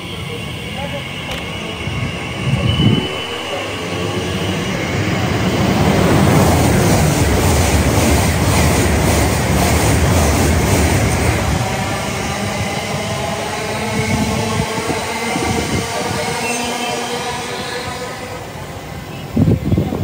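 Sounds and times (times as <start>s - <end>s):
train running past: 0.0s - 20.0s.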